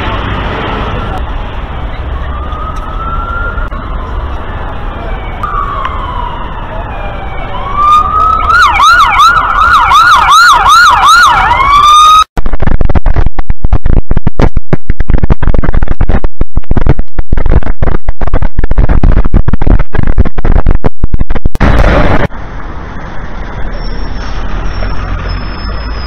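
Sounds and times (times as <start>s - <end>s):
siren yelping: 2.1s - 12.3s
distorted crackling rumble: 12.3s - 26.0s.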